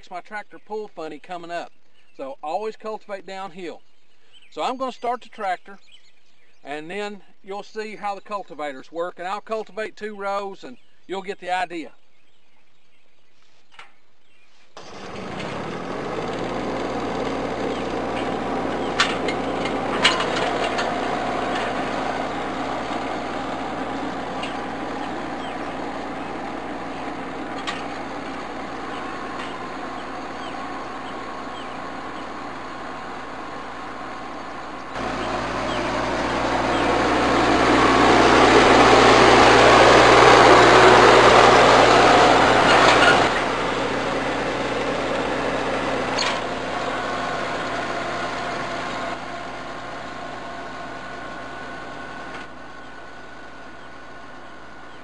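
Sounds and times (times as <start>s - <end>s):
tractor diesel engine running: 14.8s - 55.0s.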